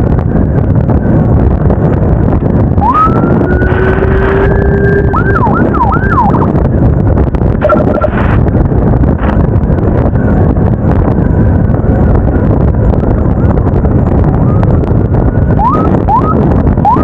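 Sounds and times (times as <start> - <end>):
motorcycle engine and wind: 0.0 - 17.0
electronic siren wailing and yelping: 2.8 - 6.7, 7.6 - 8.4, 14.2 - 17.0
rapid electronic beeps: 7.6 - 8.3.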